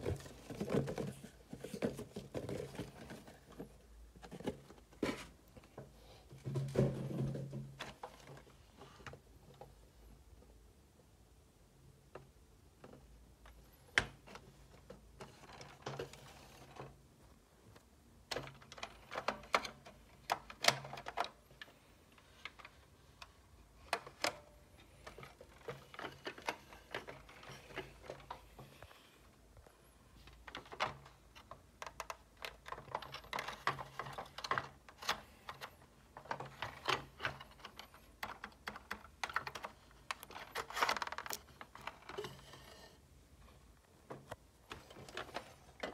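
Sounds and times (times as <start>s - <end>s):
plastic toy car clicking and rattling: 18.2s - 28.8s, 30.2s - 42.8s.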